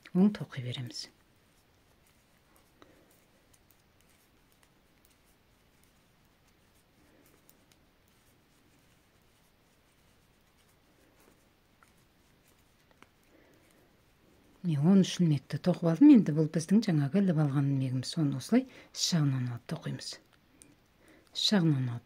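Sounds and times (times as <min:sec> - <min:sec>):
knitting needles clicking: 0:01.5 - 0:13.8, 0:20.2 - 0:21.4.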